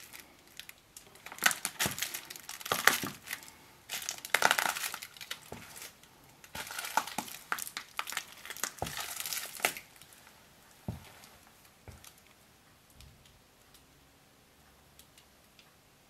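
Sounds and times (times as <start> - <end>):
foil wrapper crinkling underfoot: 0.0 - 10.3
footstep thump on tile: 10.9 - 11.2.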